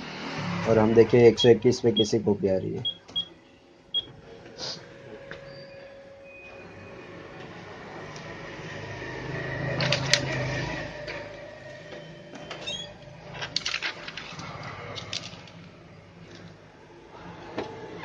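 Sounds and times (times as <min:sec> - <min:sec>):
copier mechanical hum: 0:00.0 - 0:18.0
short squeak: 0:05.4 - 0:06.7, 0:12.1 - 0:13.0.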